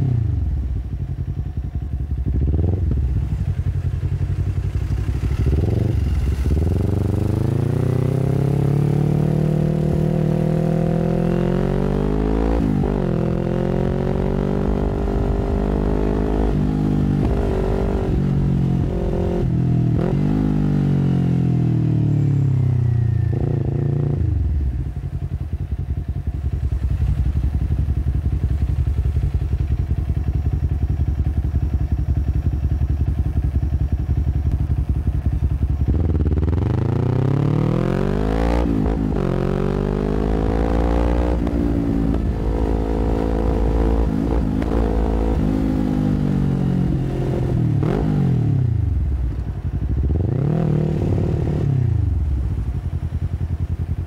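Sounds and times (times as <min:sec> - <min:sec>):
motorcycle engine revving and idling: 0:00.0 - 0:54.0.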